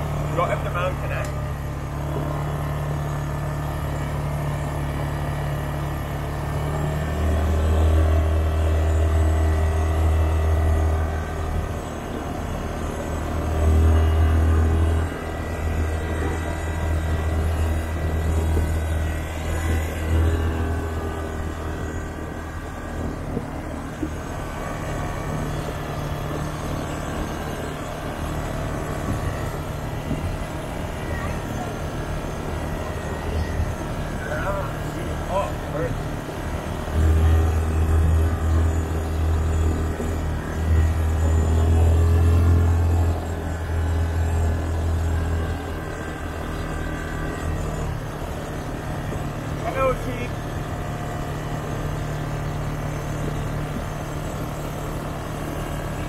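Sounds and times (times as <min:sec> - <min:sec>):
quad bike engine humming: 0:00.0 - 0:56.0.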